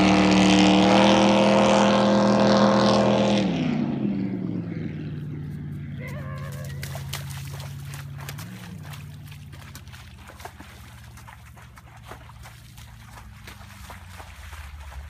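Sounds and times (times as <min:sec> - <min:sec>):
boat engine idling: 0:05.0 - 0:15.0
water lapping against hull: 0:05.9 - 0:15.0.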